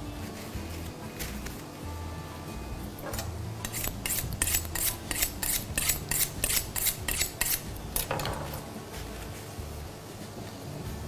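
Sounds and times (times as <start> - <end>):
blade scraping carrot: 3.1 - 8.1.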